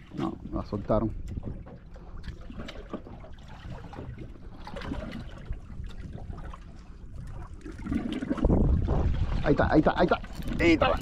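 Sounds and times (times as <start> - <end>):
water splashing around a boat: 0.0 - 11.0.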